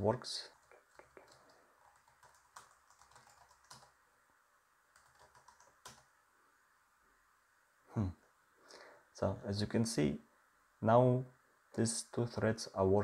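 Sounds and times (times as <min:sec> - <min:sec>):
keyboard typing: 0:00.5 - 0:04.0, 0:04.9 - 0:06.1.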